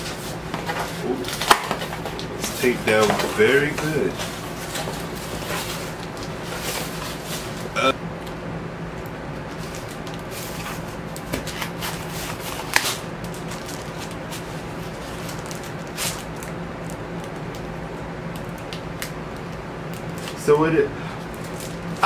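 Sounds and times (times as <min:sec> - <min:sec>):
cardboard and plastic rustling: 0:00.0 - 0:07.7, 0:09.5 - 0:16.5, 0:21.2 - 0:22.0
steady low hum: 0:00.0 - 0:22.0.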